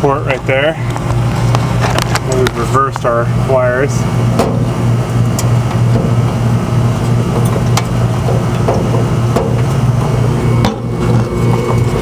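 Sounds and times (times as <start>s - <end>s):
low machine drone: 0.0s - 12.0s
light clicks and rustles of wires: 0.3s - 3.1s.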